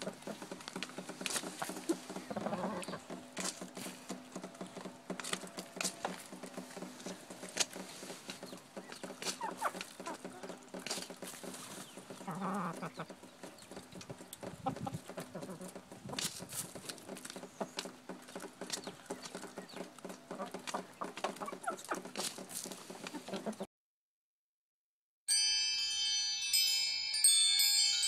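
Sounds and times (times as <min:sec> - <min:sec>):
chickens pecking: 0:00.0 - 0:23.7
wind chimes ringing: 0:25.3 - 0:28.0.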